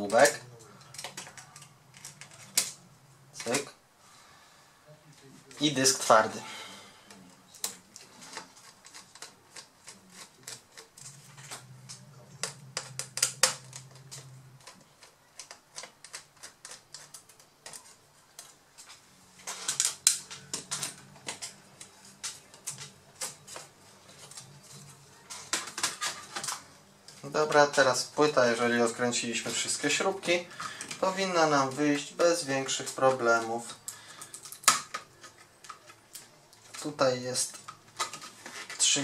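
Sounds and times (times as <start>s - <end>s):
plastic and metal clicks and rattles: 0.1s - 2.8s, 7.5s - 18.6s.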